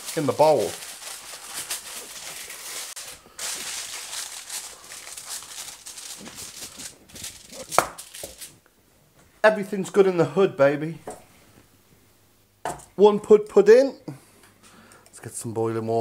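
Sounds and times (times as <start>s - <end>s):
aluminium foil crinkling: 0.0s - 8.6s.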